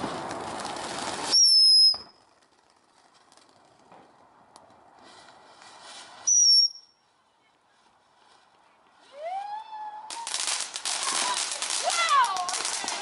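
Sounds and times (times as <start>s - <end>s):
firework fountain hissing: 0.0s - 3.9s, 4.9s - 6.9s, 8.4s - 13.0s
high firework whistle: 1.3s - 2.2s, 6.2s - 7.0s.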